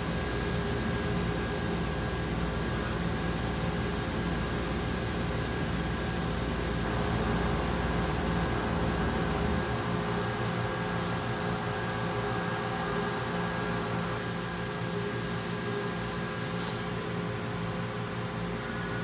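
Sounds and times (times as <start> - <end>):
mechanical hum and hiss: 0.0 - 19.0.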